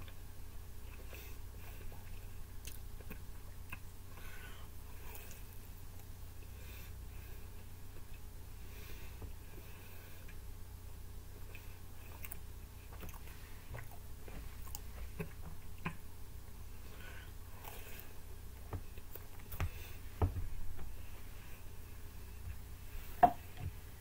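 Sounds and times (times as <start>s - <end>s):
low steady hum: 0.0s - 24.0s
person chewing pizza: 0.8s - 6.6s, 11.4s - 16.1s, 16.7s - 20.1s.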